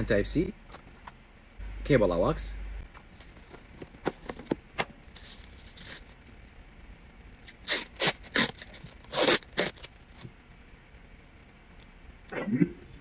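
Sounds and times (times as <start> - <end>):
plastic packaging rustling: 2.9 - 6.6, 7.3 - 10.3
plastic wrap peeled off: 5.0 - 6.6, 7.4 - 10.3.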